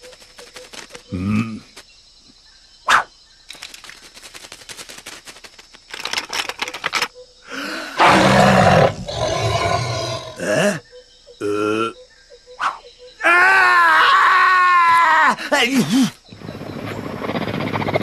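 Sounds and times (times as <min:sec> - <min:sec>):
roar-like animal call: 0:08.0 - 0:10.8.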